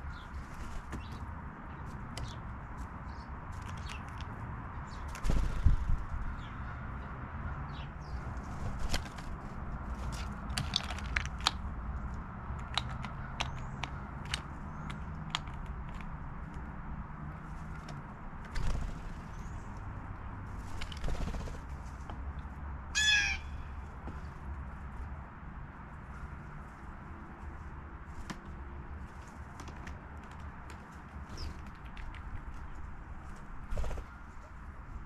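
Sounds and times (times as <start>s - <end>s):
blue jay calling: 22.9s - 23.7s.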